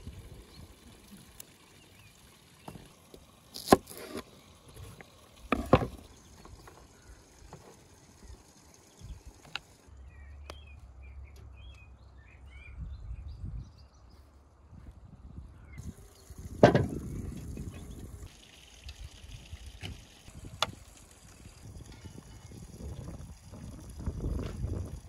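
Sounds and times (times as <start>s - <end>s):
small birds chirping: 0.1s - 14.4s
garlic being peeled by hand: 3.4s - 4.2s
knocks on wooden cutting board: 16.6s - 17.0s.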